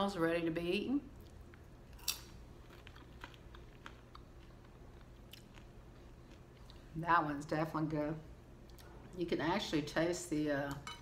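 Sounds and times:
person chewing popcorn: 1.2 - 6.9.

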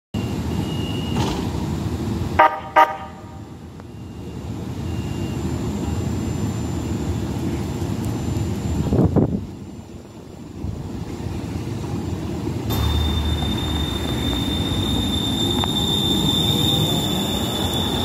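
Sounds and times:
train horn toots: 2.4 - 3.4, 12.7 - 18.0
train rumble: 5.4 - 18.0.

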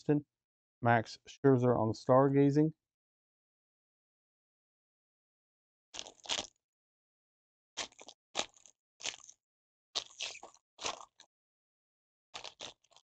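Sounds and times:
foil wrapper tearing and crinkling: 6.0 - 6.5, 7.8 - 9.4, 10.0 - 11.2, 12.4 - 13.0.

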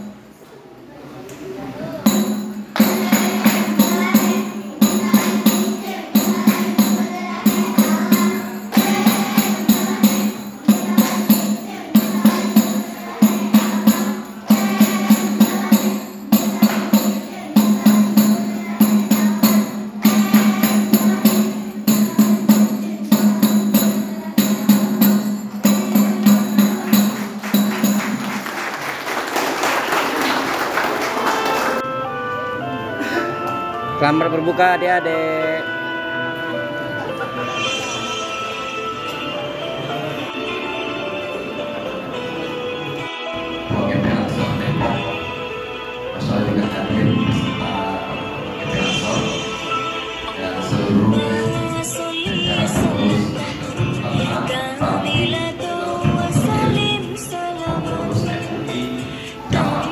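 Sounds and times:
music: 0.0 - 0.3, 2.0 - 59.9
girls clapping and slapping rhythmically: 2.7 - 21.3, 25.5 - 31.8.

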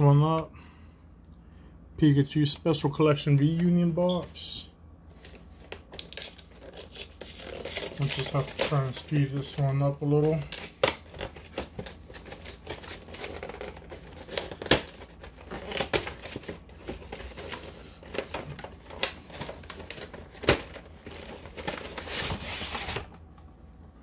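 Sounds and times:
packaging rustling and crinkling: 5.1 - 23.3.

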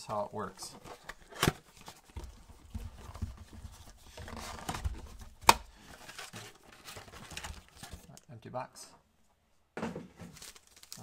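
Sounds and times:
cardboard and foil rustling: 0.6 - 8.1, 10.2 - 11.0.

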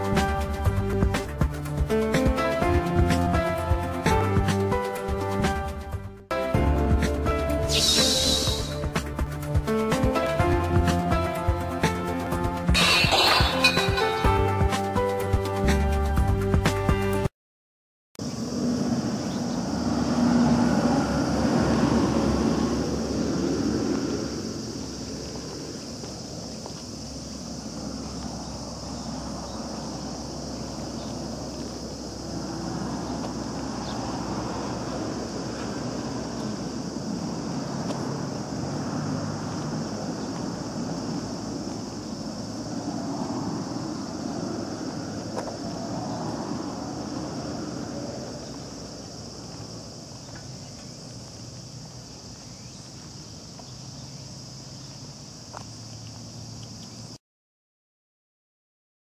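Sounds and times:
high-pitched insect chorus: 6.5 - 16.4, 18.2 - 57.2
high-pitched hiss: 7.3 - 9.2, 12.8 - 14.5.

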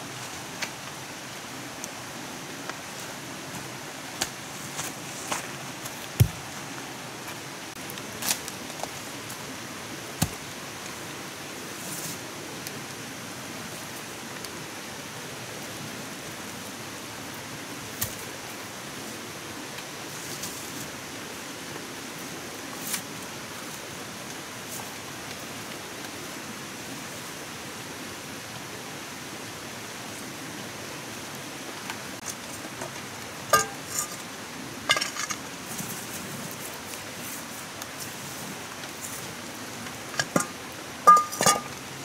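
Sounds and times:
background hiss: 0.0 - 42.0
cookware clinking: 33.5 - 34.2, 40.2 - 41.8.

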